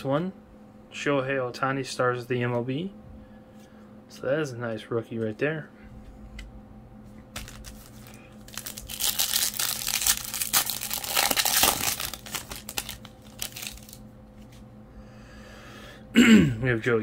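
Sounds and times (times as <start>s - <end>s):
wrapper tearing and crinkling: 7.4s - 14.0s.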